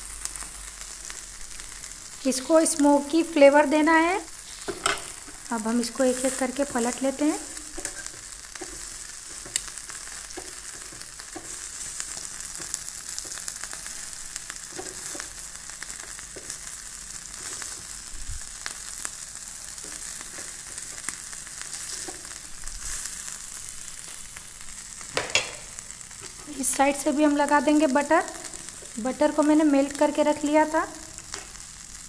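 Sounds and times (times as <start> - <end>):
chicken sizzling on a grill: 0.0 - 32.0
metal tongs knocking: 25.2 - 25.7.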